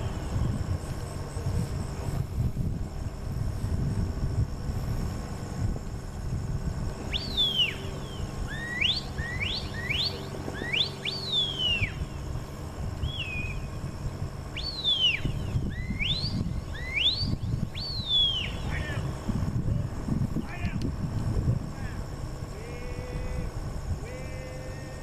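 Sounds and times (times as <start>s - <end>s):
handler's whistle commands: 7.1s - 12.1s, 14.5s - 19.3s.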